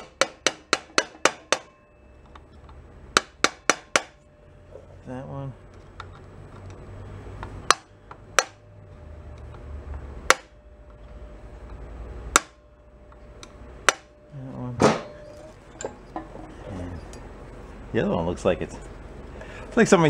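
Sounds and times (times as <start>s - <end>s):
hammer striking metal: 0.0s - 2.3s, 3.1s - 4.5s, 7.7s - 8.7s, 10.3s - 10.6s, 12.3s - 12.6s, 13.8s - 14.2s, 14.8s - 16.5s.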